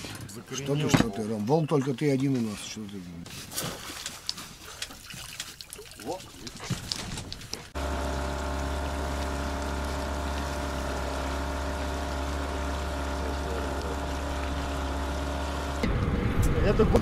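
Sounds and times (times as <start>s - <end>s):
boat motor running: 7.6s - 17.0s.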